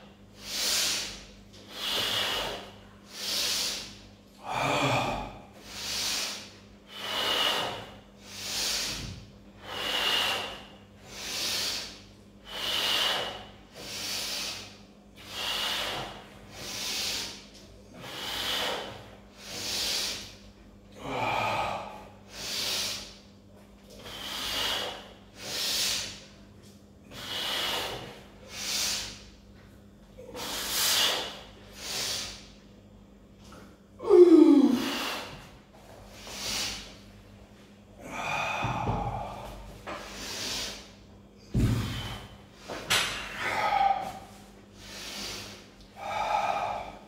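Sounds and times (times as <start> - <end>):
man breathing hard: 0.4 - 26.4, 27.0 - 29.4, 30.2 - 32.6, 33.4 - 47.0
man groaning: 34.0 - 35.1, 38.0 - 39.5, 43.3 - 44.2.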